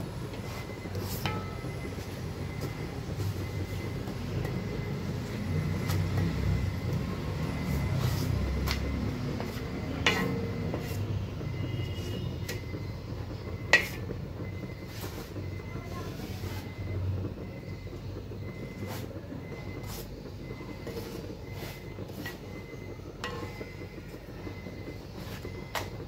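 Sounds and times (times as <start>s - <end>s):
wooden spatula on pan: 0.3s - 4.6s, 5.3s - 12.6s, 13.6s - 14.1s, 19.8s - 23.8s
spatula knocking against pan: 1.2s - 2.0s, 8.7s - 12.7s, 13.6s - 14.1s.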